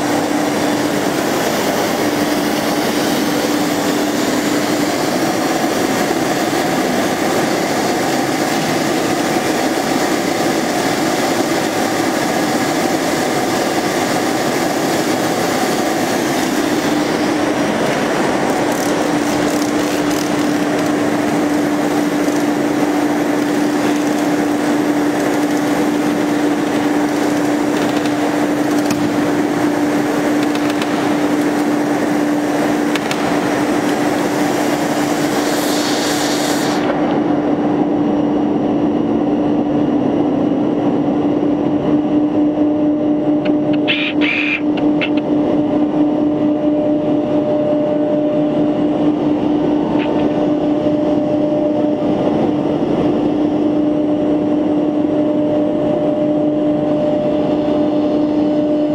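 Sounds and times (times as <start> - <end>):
cnc router machine noise: 0.0 - 58.9.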